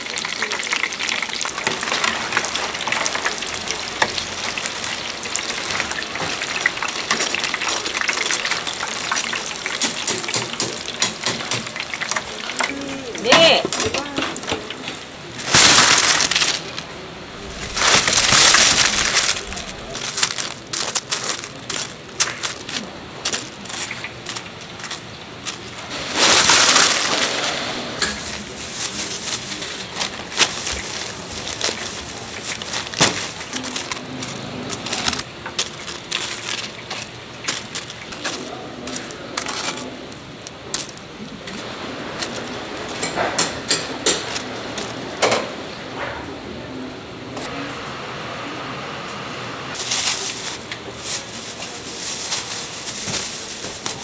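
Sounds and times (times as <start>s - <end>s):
paper rustling: 15.4s - 24.4s, 25.5s - 40.0s, 49.8s - 54.0s.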